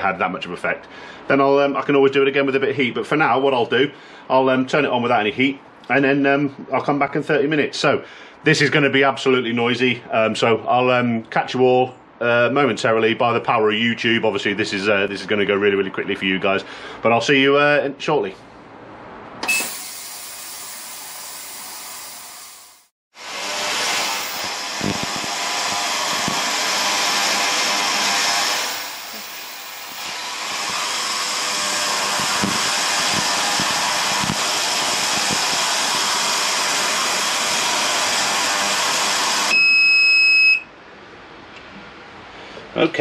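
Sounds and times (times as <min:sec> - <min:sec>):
ultrasonic cleaner hissing: 0:19.4 - 0:39.5.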